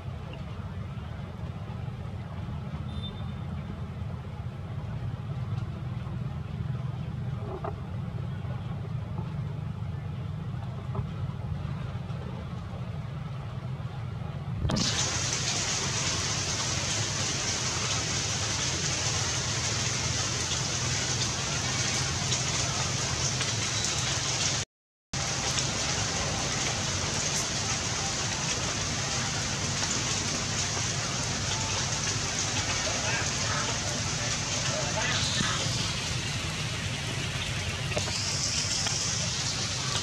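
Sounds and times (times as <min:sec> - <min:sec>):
low steady rumble: 0:00.0 - 0:24.5, 0:25.2 - 0:40.0
rain on wet pavement: 0:14.6 - 0:24.6, 0:25.2 - 0:40.0.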